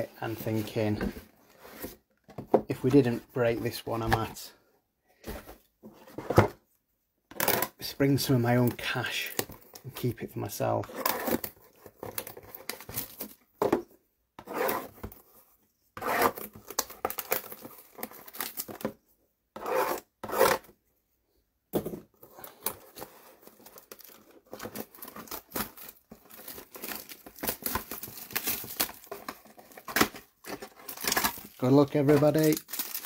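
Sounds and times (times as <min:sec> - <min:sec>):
packaging crinkling: 0:22.5 - 0:33.0
packaging ripping: 0:23.4 - 0:33.0.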